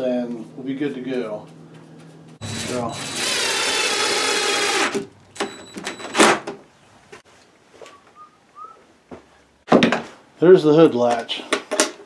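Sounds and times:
cordless drill driving screw: 2.4 - 5.1.

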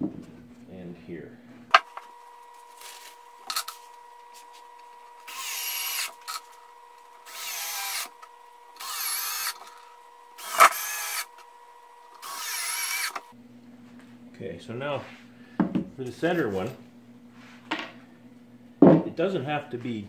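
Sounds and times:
cordless drill driving screws: 1.9 - 11.5, 12.1 - 13.3.

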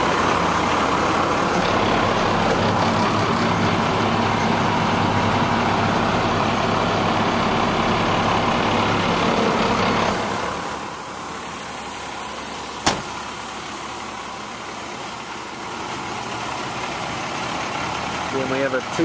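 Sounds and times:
diesel truck engine idling: 0.0 - 19.0
cab door slamming: 12.8 - 13.4.

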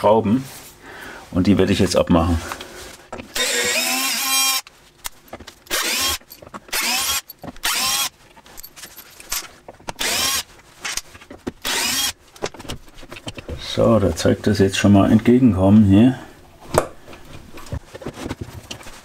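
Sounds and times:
cordless drill motor whirring: 3.3 - 4.6, 5.7 - 8.1, 10.0 - 10.5, 11.6 - 12.2
clicks and handling noises: 4.6 - 11.6, 12.3 - 14.3, 16.7 - 19.0.

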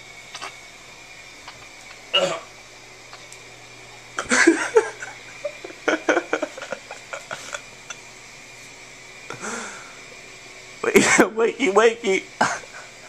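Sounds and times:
hushed laughter: 4.2 - 8.0.

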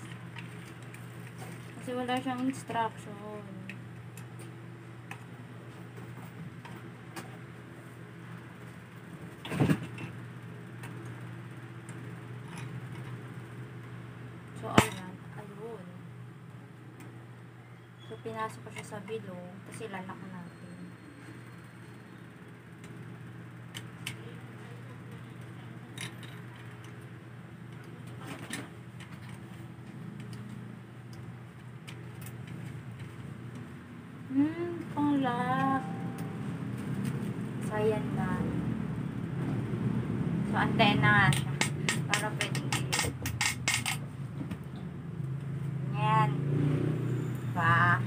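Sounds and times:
steady low hum: 0.0 - 46.5.

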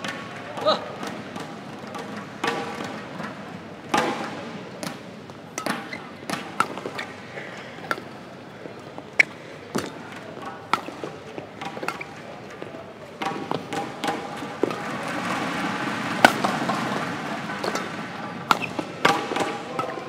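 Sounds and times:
rackets striking shuttlecock: 0.0 - 7.2, 7.8 - 8.2, 9.1 - 20.0
murmur of indoor hall: 0.0 - 20.0.

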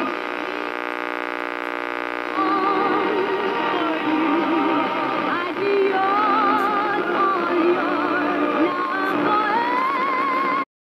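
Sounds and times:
steady held tone: 0.0 - 10.4
person singing with vibrato: 2.4 - 10.6.

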